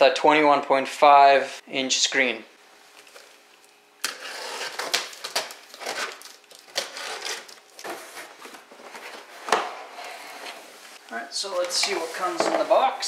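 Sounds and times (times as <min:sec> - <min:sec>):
cardboard scraping and rustling: 0:04.1 - 0:11.0, 0:11.6 - 0:13.0.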